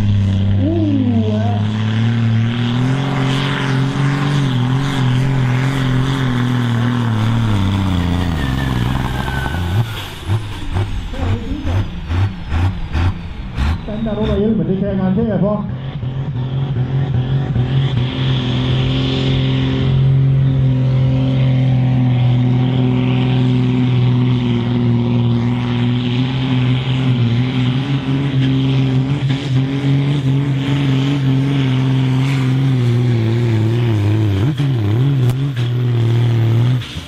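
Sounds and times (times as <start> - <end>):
tractor diesel engine droning: 0.0 - 37.0.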